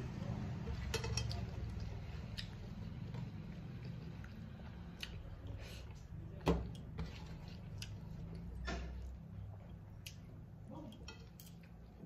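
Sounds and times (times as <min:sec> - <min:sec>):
fingers mixing food on steel plate: 0:06.4 - 0:12.0.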